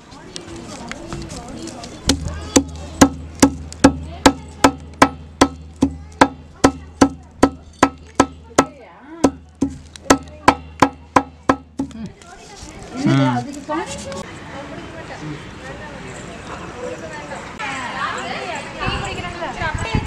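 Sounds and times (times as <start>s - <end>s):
pods pounded on hard surface: 2.0s - 12.0s.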